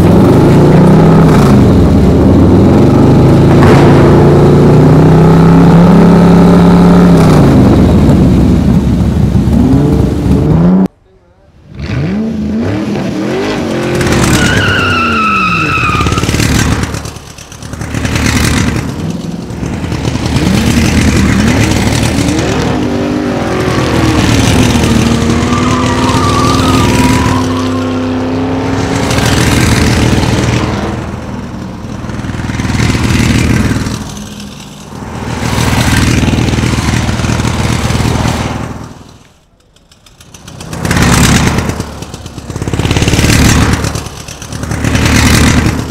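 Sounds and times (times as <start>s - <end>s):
tyre squeals: 13.9s - 16.5s, 24.9s - 28.4s
racing car engines revving past: 17.7s - 39.0s.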